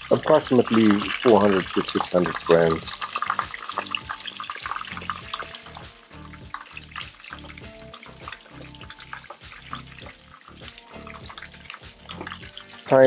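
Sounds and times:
fish deep-frying in oil: 0:00.0 - 0:13.0
background music with a beat: 0:02.9 - 0:13.0.

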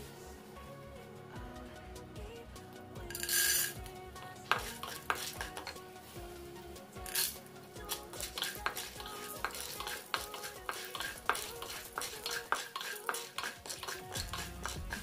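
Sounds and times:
oil sizzling: 0:03.1 - 0:15.0
kernels rattling into pan: 0:03.2 - 0:03.8, 0:08.2 - 0:15.0
kernels scraping in a wok: 0:03.2 - 0:03.8, 0:04.5 - 0:05.7, 0:07.1 - 0:15.0.

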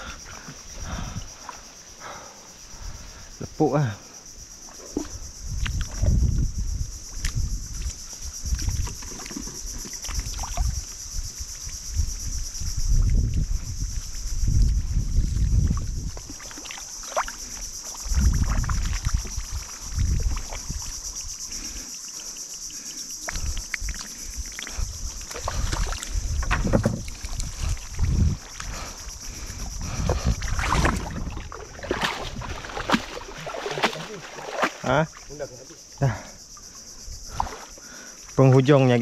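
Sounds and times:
high-pitched insect drone: 0:00.0 - 0:39.0
water sloshing and splashing: 0:07.0 - 0:11.9, 0:12.9 - 0:39.0.

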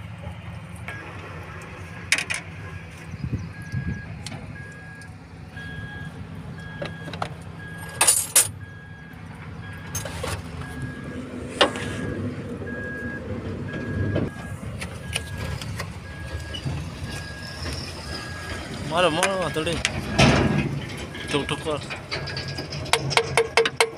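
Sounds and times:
hand tools clinking on metal: 0:07.8 - 0:08.6
warning beeper tones: 0:16.0 - 0:20.5, 0:21.1 - 0:22.7.

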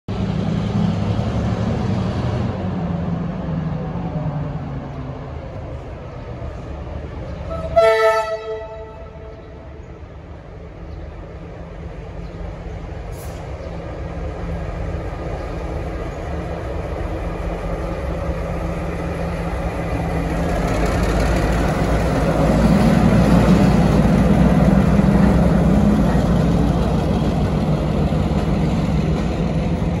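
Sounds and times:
diesel locomotive engine passing: 0:00.1 - 0:30.0
locomotive horn: 0:07.5 - 0:09.5.

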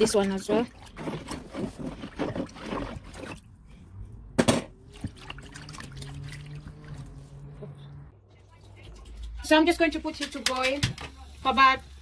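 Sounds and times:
berries squishing in liquid: 0:04.8 - 0:07.2.

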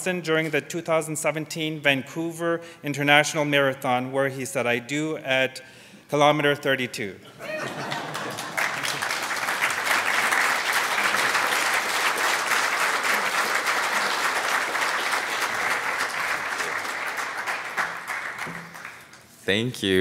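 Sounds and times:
audience clapping: 0:07.6 - 0:19.4.

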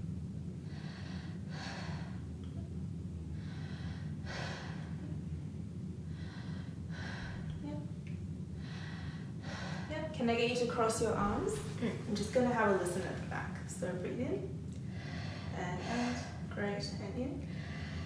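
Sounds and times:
steady low hum: 0:00.0 - 0:18.0
woman breathing deeply: 0:00.6 - 0:10.1, 0:14.8 - 0:16.6, 0:17.4 - 0:18.0.

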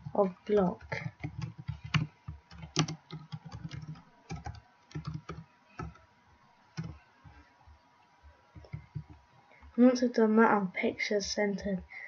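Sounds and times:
keyboard typing: 0:00.0 - 0:06.0, 0:06.7 - 0:07.4, 0:08.5 - 0:09.7.

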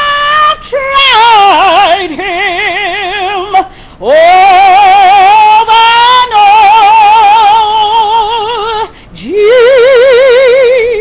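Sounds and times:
woman singing a hymn: 0:00.0 - 0:11.0
woman breathing: 0:03.7 - 0:04.0, 0:08.9 - 0:09.2.

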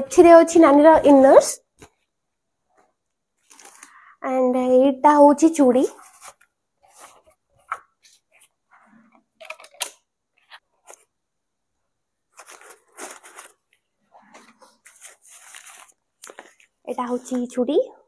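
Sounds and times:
packaging crinkling and tearing: 0:03.4 - 0:04.0, 0:12.3 - 0:13.8, 0:14.8 - 0:17.4.

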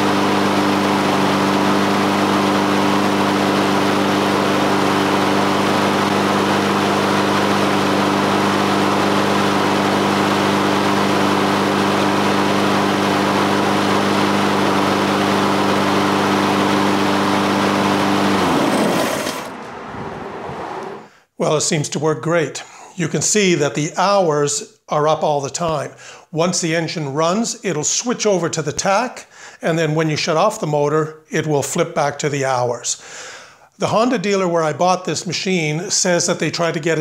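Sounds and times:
lawn mower engine running: 0:00.0 - 0:21.1.

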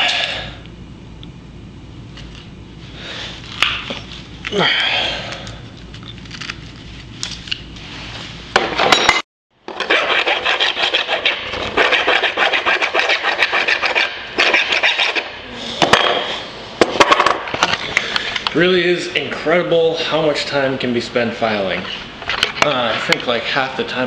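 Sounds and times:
hand file rasping on metal: 0:09.8 - 0:15.3.

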